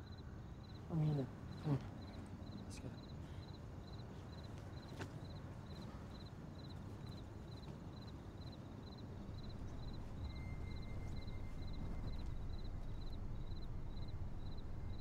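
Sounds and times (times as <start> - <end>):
cricket chirping: 0.0 - 15.0
low rumble: 9.1 - 15.0.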